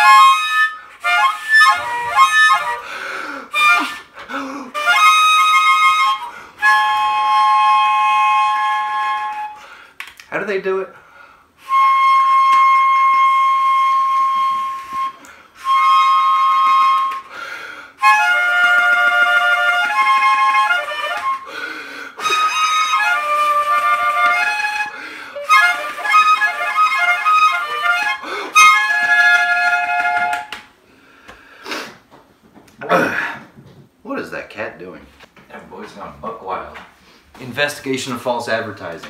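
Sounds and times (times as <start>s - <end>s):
toy harmonica playing: 0.0s - 2.9s, 3.5s - 9.6s, 18.0s - 30.6s.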